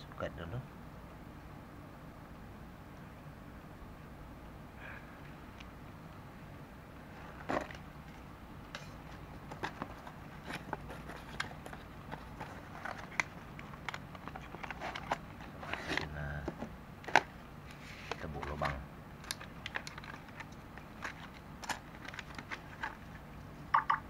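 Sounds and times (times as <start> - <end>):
plastic packaging rustling: 9.0 - 23.2.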